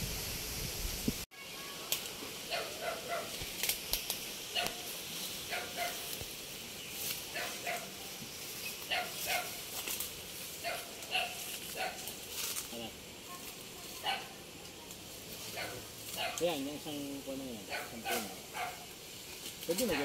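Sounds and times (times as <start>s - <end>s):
dog barking: 2.5s - 3.4s, 4.5s - 4.8s, 5.5s - 6.1s, 7.3s - 7.9s, 8.9s - 9.6s, 10.6s - 12.1s, 14.0s - 14.4s, 15.5s - 16.4s, 17.7s - 18.9s.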